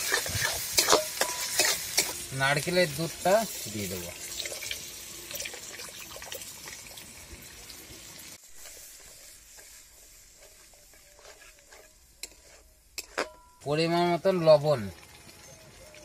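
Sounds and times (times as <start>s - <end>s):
spatula stirring with scrapes: 0.0s - 3.7s, 8.4s - 13.6s.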